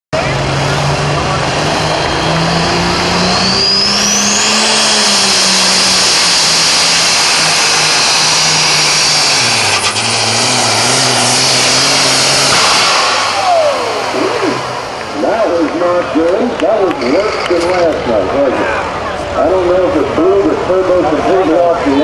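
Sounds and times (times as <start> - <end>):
diesel tractor engine at full throttle: 0.1 - 22.0
turbocharger blowing: 0.2 - 21.9
turbo whine: 1.7 - 16.0.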